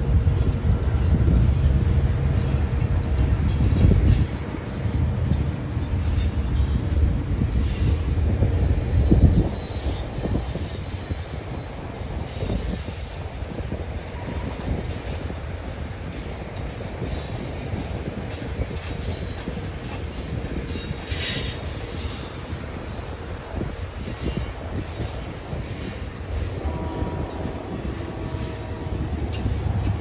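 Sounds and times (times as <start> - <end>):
train wheels rumbling on rails: 0.0 - 30.0
wheel squeals: 7.6 - 11.5.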